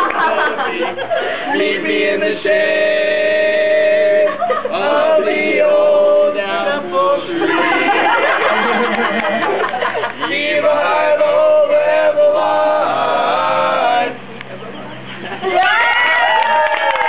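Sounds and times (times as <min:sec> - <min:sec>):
boys singing a cappella harmony: 0:00.0 - 0:08.9, 0:10.1 - 0:14.2.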